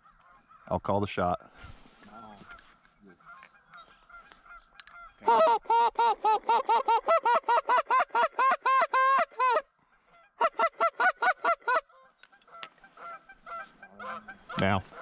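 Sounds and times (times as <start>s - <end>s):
goose call honks: 12.5s - 15.0s.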